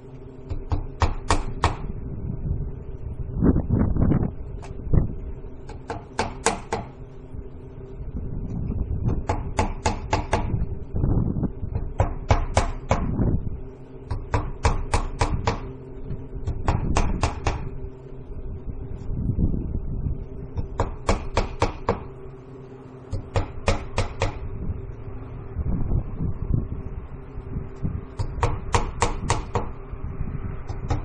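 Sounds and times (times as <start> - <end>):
steady low rumble: 0.0 - 31.0
hammer driving nails: 5.7 - 6.9, 16.6 - 17.7, 20.7 - 22.0.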